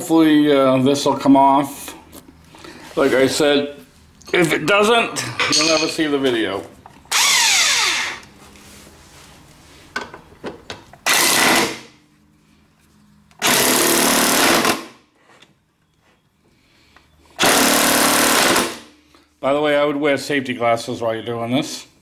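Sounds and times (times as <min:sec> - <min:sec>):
impact wrench hammering: 0:11.0 - 0:11.8, 0:13.4 - 0:15.0, 0:17.4 - 0:18.9.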